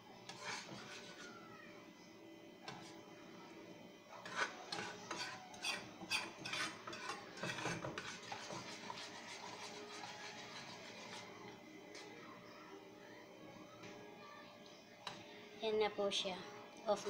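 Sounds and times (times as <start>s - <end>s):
spoon scraping a saucepan: 0.3s - 1.3s, 4.2s - 11.3s.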